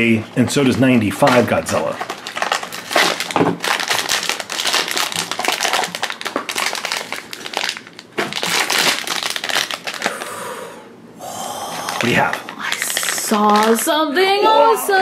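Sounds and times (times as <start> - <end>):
foil bag crinkling: 1.2 - 10.3, 11.9 - 14.1.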